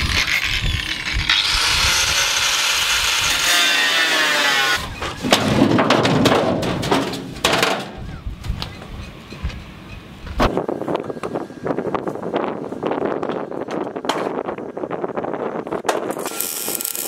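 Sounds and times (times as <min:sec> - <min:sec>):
angle grinder cutting metal: 0:00.0 - 0:04.8, 0:16.2 - 0:17.0
metallic knocks and clanks: 0:04.9 - 0:08.0.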